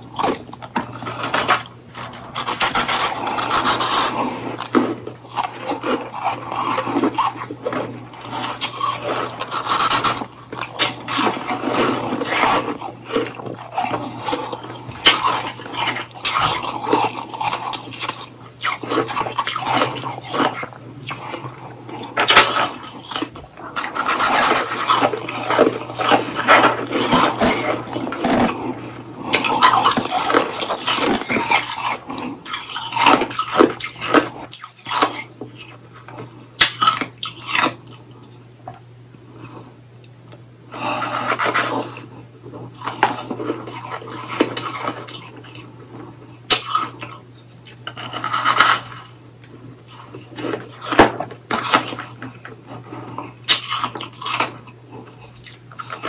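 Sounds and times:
crunching and chewing ice: 0:00.0 - 0:38.4, 0:40.7 - 0:56.0.

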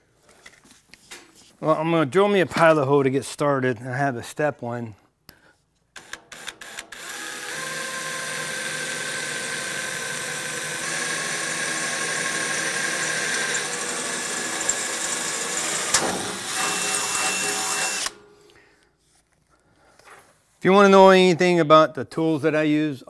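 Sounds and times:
cordless drill boring into metal: 0:06.0 - 0:18.2.

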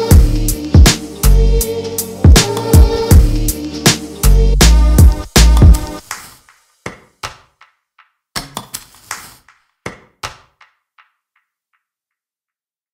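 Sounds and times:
music beat: 0:00.0 - 0:11.6
short percussive taps: 0:05.5 - 0:11.9.

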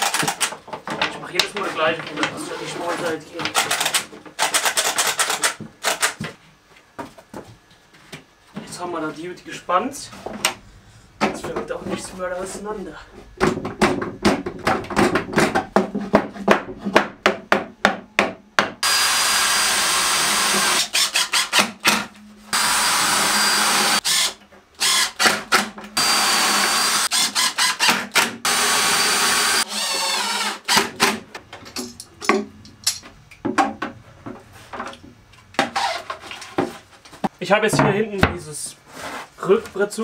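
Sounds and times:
cordless drill running: 0:18.8 - 0:21.7, 0:22.6 - 0:25.4, 0:26.0 - 0:31.0.

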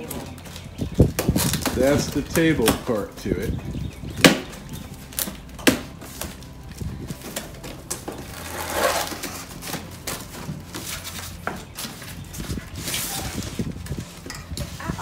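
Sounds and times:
cardboard flaps and tape snapping: 0:00.0 - 0:03.0, 0:04.2 - 0:14.0
cardboard rustling and scraping: 0:00.0 - 0:03.6, 0:04.4 - 0:15.0.

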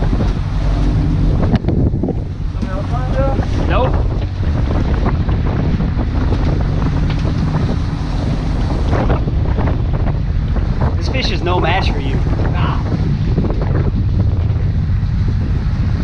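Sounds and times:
boat engine rumbling: 0:00.0 - 0:16.0
rush of boat wake: 0:00.0 - 0:16.0
wind buffeting microphone: 0:00.0 - 0:16.0.

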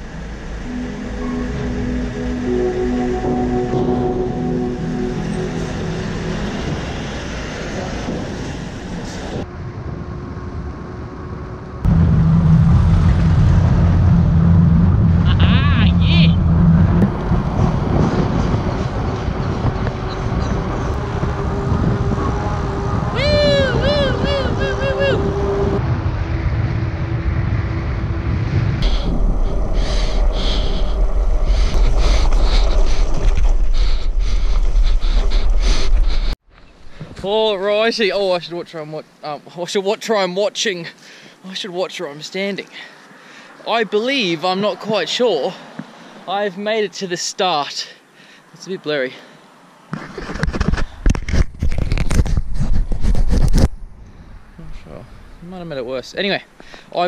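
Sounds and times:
ferry engine and deck noise: 0:00.0 - 0:38.0
wind rumble on microphone: 0:05.6 - 0:37.2, 0:50.0 - 0:55.5
high rattles and scrapes: 0:49.9 - 0:53.7.

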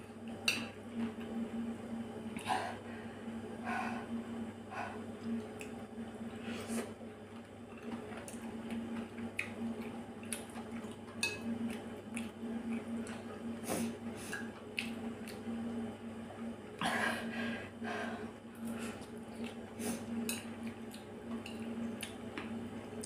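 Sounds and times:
steady low hum: 0:00.0 - 0:23.0
wet chewing and mouth sounds: 0:06.7 - 0:15.5, 0:18.6 - 0:19.7.

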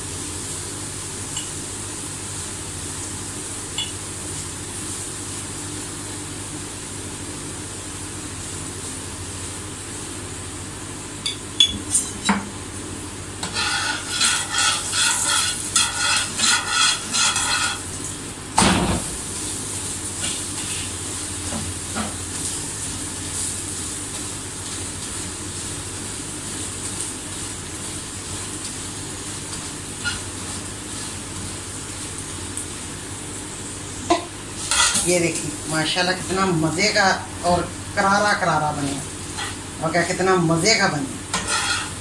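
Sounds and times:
flatbread sizzling in oil: 0:00.0 - 0:42.0
metal spatula on pan: 0:13.4 - 0:18.0, 0:30.0 - 0:30.2, 0:34.6 - 0:35.1, 0:39.3 - 0:39.6, 0:41.3 - 0:42.0.

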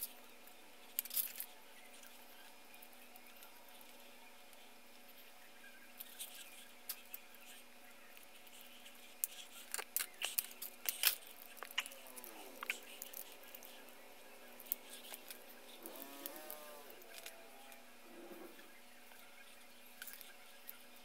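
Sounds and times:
plastic parts clicking and snapping: 0:14.6 - 0:19.2.

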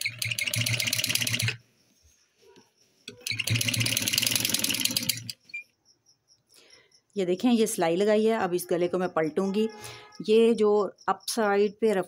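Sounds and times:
sewing machine stitching: 0:00.0 - 0:01.6, 0:03.1 - 0:05.4.

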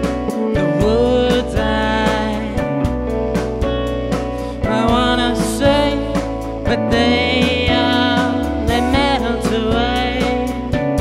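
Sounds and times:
drum kit beat: 0:00.0 - 0:11.0
guitar: 0:00.0 - 0:11.0.

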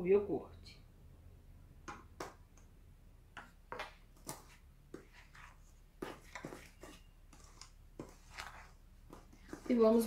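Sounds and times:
spoon scraping batter in bowl: 0:03.5 - 0:10.0.

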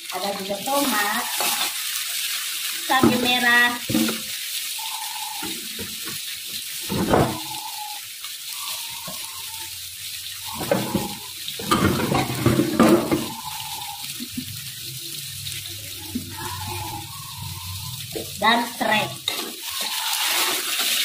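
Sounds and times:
vegetables sizzling in oil: 0:00.0 - 0:21.0.

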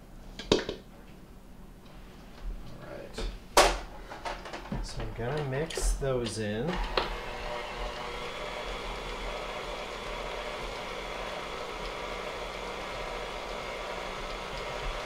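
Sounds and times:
stand mixer motor humming: 0:05.2 - 0:15.0.

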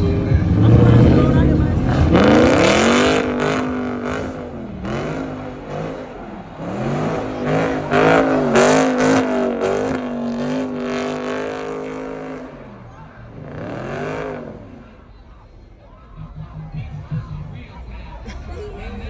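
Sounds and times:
car engine revving hard: 0:00.0 - 0:15.0
tyres spinning on asphalt: 0:00.0 - 0:16.4.

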